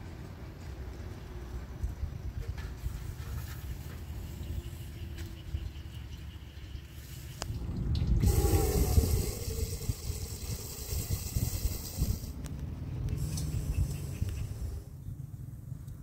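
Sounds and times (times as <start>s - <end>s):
low knocks and rumble: 7.5s - 9.1s
water pouring into a pot: 7.5s - 12.0s.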